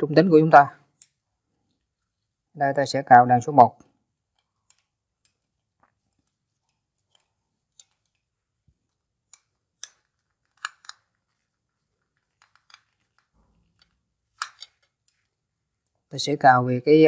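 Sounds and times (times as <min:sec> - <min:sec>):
screwdriver clicks and scrapes: 0:04.3 - 0:08.3, 0:09.3 - 0:15.3.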